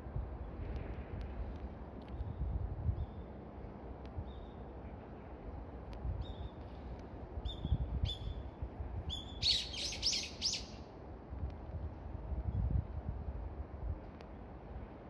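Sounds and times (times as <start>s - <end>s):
wind rumbling on microphone: 0.0s - 15.0s
small birds chirping: 9.1s - 10.8s.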